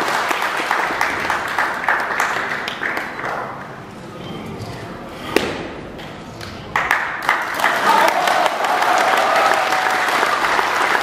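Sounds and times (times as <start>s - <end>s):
audience applauding: 0.0s - 3.4s, 6.8s - 11.0s
sharp crack: 5.3s - 6.6s.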